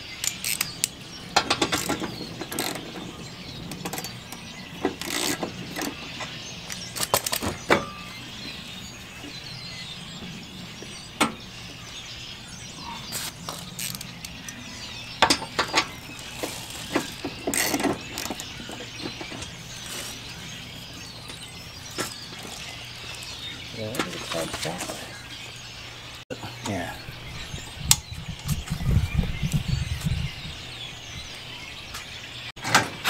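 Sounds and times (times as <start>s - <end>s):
ratchet wrench clicking: 0.2s - 0.9s, 13.2s - 14.1s.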